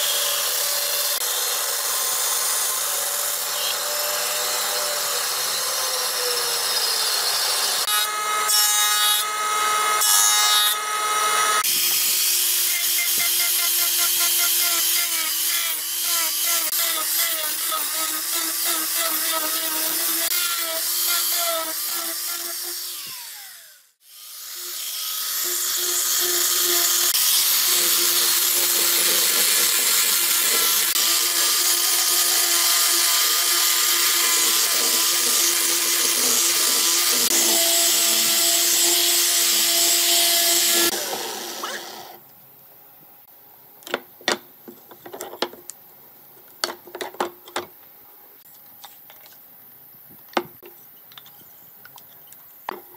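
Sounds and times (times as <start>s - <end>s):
angle grinder sanding wood: 3.4s - 42.2s.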